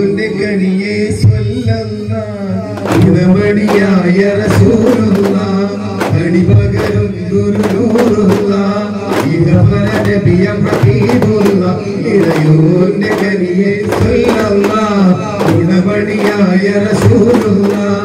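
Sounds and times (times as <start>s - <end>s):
men singing: 0.0s - 18.0s
frame drums struck by hand: 2.8s - 18.0s.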